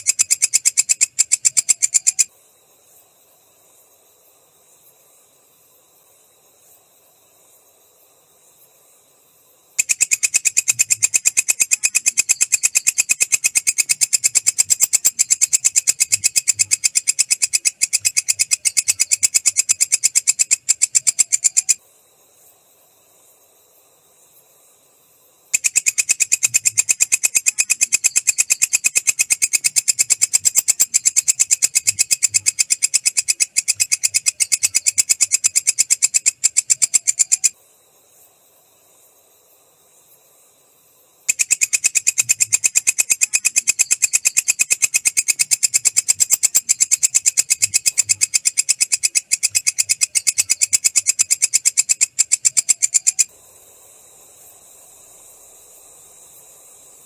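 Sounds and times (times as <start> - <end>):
katydid clicking call: 0.0 - 2.3, 9.8 - 21.8, 25.5 - 37.6, 41.3 - 53.3.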